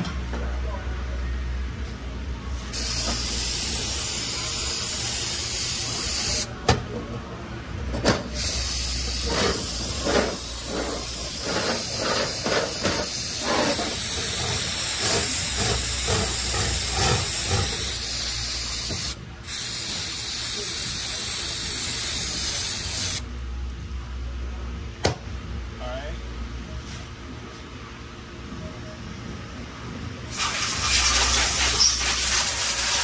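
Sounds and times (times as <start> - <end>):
aerosol spray hissing: 2.7 - 6.5, 8.4 - 23.2, 30.3 - 33.0.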